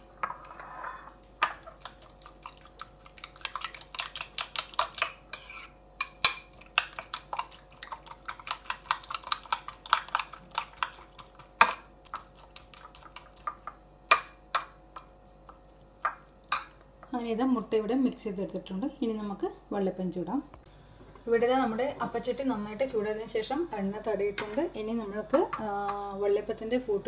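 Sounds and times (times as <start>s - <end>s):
spoon beating egg in bowl: 1.4s - 16.8s.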